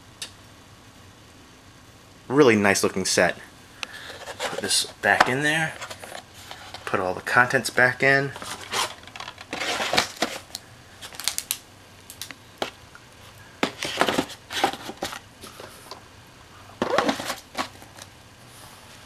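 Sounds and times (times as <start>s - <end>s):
cardboard box rustling: 4.0s - 6.9s, 8.4s - 10.5s, 13.6s - 15.6s, 16.8s - 18.1s
cases clicking and knocking: 13.6s - 15.2s, 16.8s - 18.1s.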